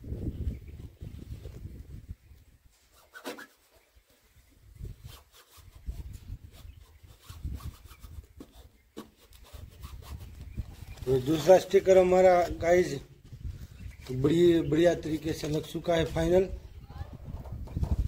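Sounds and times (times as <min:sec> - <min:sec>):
sticker rubbing and crinkling: 0:02.8 - 0:03.8, 0:04.9 - 0:11.8.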